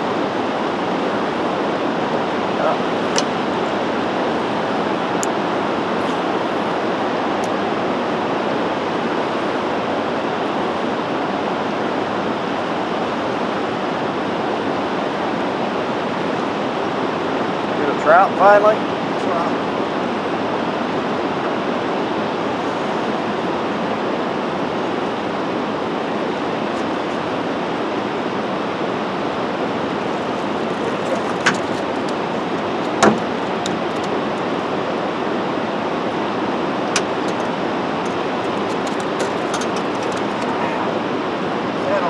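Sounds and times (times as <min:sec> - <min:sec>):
wind and water rushing: 0:00.0 - 0:42.0
sharp knocks: 0:32.9 - 0:33.8.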